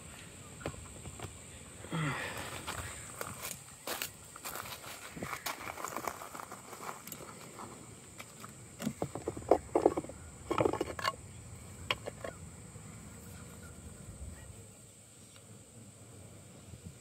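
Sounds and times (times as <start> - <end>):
honey bees humming: 0.0 - 17.0
knocks and rustles: 4.6 - 11.2.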